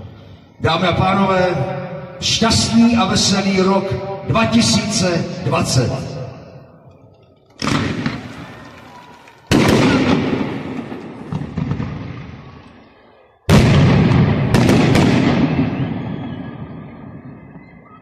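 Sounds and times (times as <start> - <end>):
sharp firework cracks: 7.6 - 12.7, 13.5 - 16.3
firework shells booming: 7.6 - 12.8, 13.5 - 17.1.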